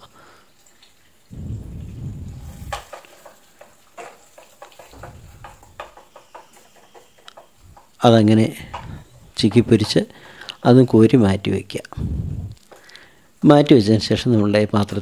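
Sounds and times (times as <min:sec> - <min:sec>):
faint frying sizzle: 0:00.0 - 0:15.0
low rumble: 0:01.3 - 0:02.8
spatula scraping a pan: 0:02.3 - 0:07.9.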